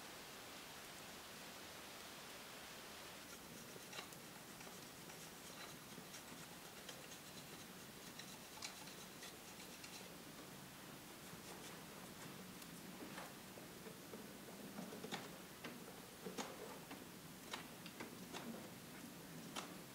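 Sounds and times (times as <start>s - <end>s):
soft steady hiss: 0.0s - 19.9s
wood fire crackling: 3.0s - 15.8s
knife scratching wooden stick: 3.2s - 10.2s.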